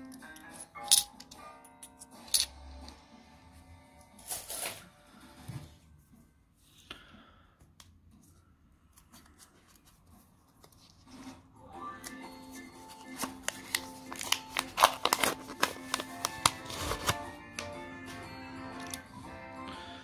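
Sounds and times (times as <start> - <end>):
faint background music: 0.0 - 20.0
coins clinking on wooden table: 0.8 - 2.5.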